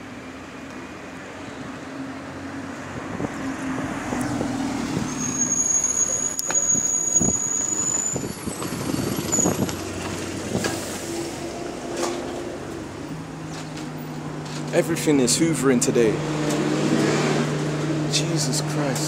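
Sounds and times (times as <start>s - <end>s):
bus engine running low: 0.0s - 19.0s
high brake squeal: 4.9s - 10.0s.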